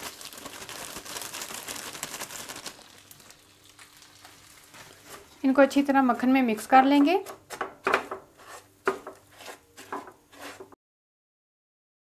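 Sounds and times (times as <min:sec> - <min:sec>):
plastic bag crinkling: 0:00.0 - 0:05.0.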